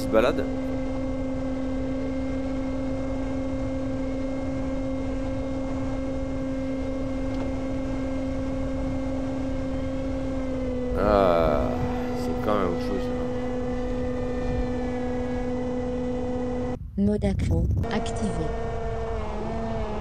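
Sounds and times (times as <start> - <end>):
model plane motor hum: 0.0 - 16.8
wavering tone: 10.9 - 16.7
wind rumbling on microphone: 13.7 - 15.0, 16.8 - 18.5.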